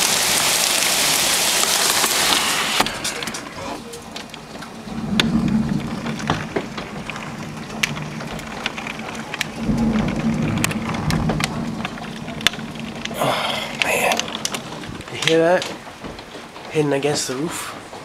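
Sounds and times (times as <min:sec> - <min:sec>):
heavy rain hiss: 0:00.0 - 0:16.0
hail striking roof and windows: 0:00.0 - 0:18.0
low rumble: 0:03.1 - 0:15.3.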